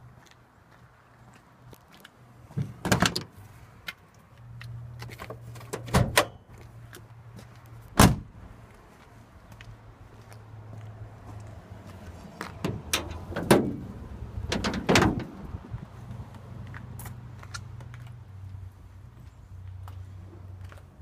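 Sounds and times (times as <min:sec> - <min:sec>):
car hood metallic clunks: 0:12.6 - 0:13.9, 0:14.5 - 0:15.3.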